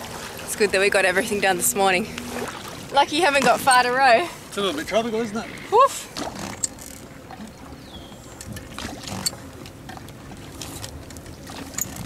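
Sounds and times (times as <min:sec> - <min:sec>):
water splashing at oars: 0:00.0 - 0:05.0, 0:05.6 - 0:12.0.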